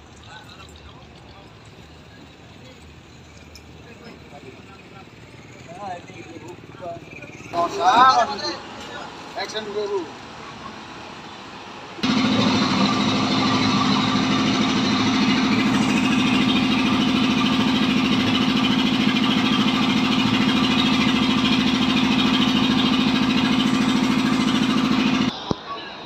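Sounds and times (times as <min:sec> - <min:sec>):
ice crusher grinding: 0:12.0 - 0:25.3.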